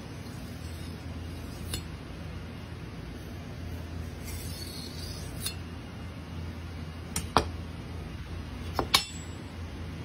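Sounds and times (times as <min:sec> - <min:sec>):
low steady hum: 0:00.0 - 0:10.0
knife blade clicking on whetstone: 0:00.5 - 0:01.9, 0:04.2 - 0:05.6.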